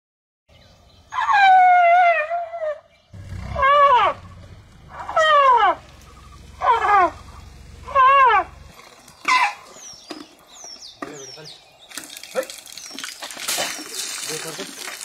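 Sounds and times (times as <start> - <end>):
elephant squeaks: 3.5 - 4.3, 4.9 - 8.6, 9.2 - 9.9.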